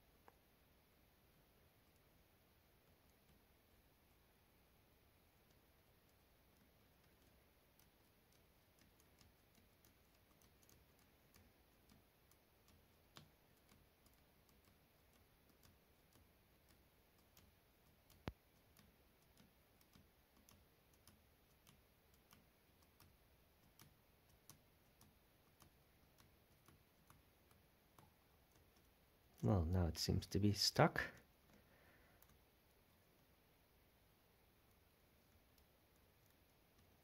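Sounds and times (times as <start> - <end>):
laptop key tapping: 5.4 - 29.0.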